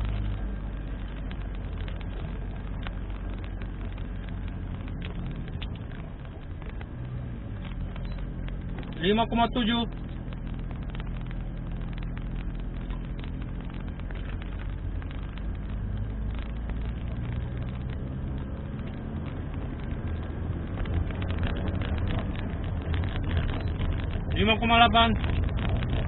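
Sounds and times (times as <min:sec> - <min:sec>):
car engine drone: 0:00.0 - 0:26.0
small clicks and rattles: 0:00.0 - 0:26.0
tyre and road noise: 0:00.0 - 0:26.0.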